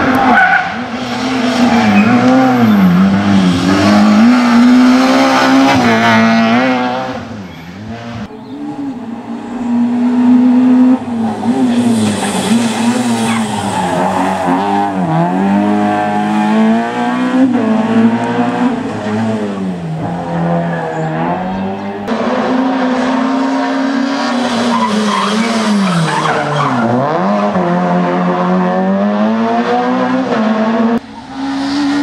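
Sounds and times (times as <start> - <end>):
rally car engine revving: 0.0 - 32.0.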